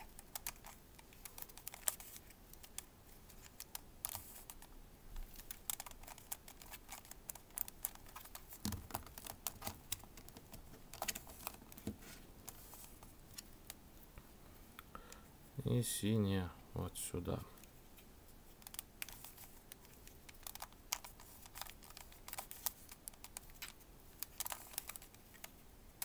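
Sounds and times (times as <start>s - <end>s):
plastic puzzle clicking: 18.6s - 25.5s.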